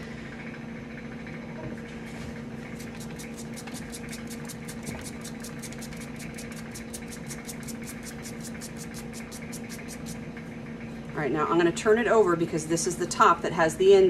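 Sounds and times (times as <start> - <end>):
steady machine hum: 0.0 - 14.0
fast pulsing hiss: 2.8 - 10.2.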